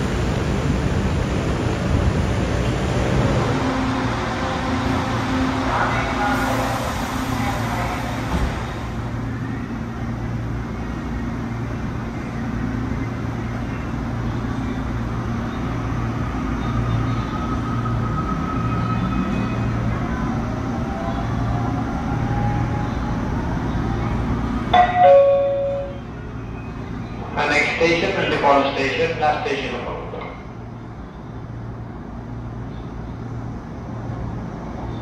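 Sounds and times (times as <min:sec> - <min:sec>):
train pulling out: 0:00.0 - 0:31.5
train doors closing thump: 0:08.2 - 0:08.8.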